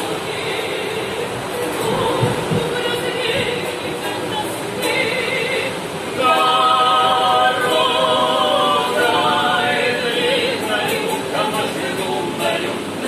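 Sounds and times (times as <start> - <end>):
mixed group singing a cappella: 0.0 - 13.0.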